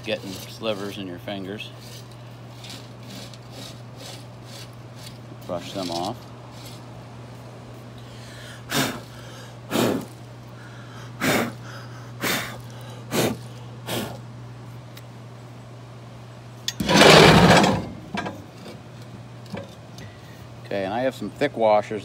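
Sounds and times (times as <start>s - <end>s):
steady low hum: 0.0s - 22.0s
man blowing short puffs: 8.0s - 14.2s.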